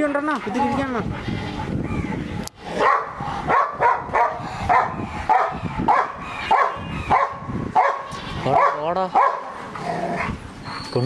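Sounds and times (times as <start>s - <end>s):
dog barking: 2.8s - 9.6s
dog whining: 10.2s - 11.0s.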